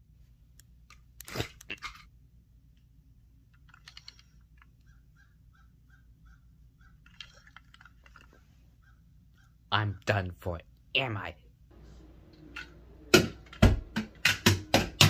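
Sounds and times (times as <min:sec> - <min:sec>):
plastic toy trains clicking: 0:03.5 - 0:04.9, 0:07.0 - 0:08.4.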